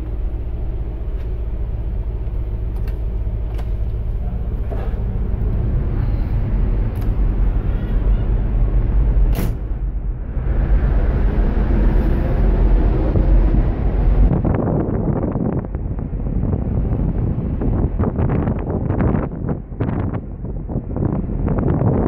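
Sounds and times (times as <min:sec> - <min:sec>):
ship engine rumble: 0:00.0 - 0:22.0
wind rushing on microphone: 0:00.0 - 0:22.0
sharp click: 0:09.3 - 0:09.7.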